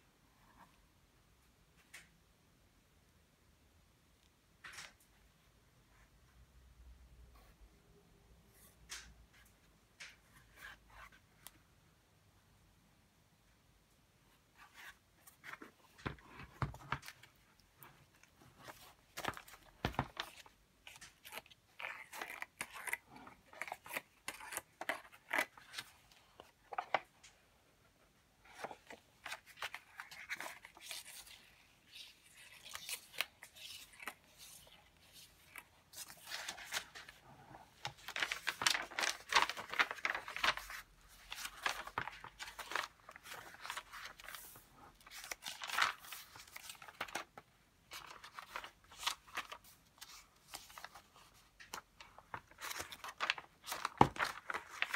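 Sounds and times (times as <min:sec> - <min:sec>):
paper rustling and crinkling: 0:14.5 - 0:27.1, 0:28.4 - 0:54.9.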